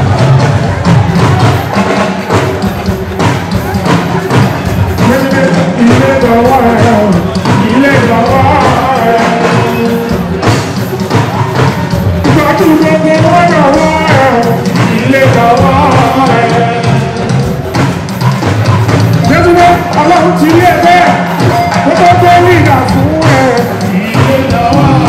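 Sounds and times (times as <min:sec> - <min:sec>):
percussion and bass: 0:00.0 - 0:25.0
man singing into microphone: 0:04.9 - 0:10.5, 0:12.2 - 0:17.6, 0:19.2 - 0:25.0.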